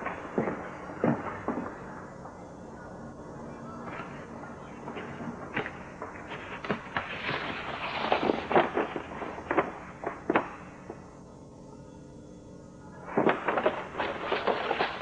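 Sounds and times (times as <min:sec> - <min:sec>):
stiff paper crackling: 0:13.1 - 0:15.0.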